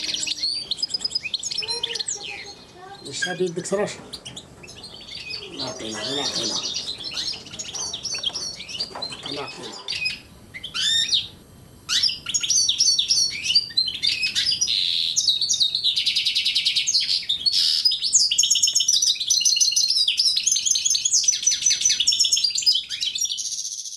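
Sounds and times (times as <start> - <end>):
goldfinch twittering song: 0.0 - 11.3.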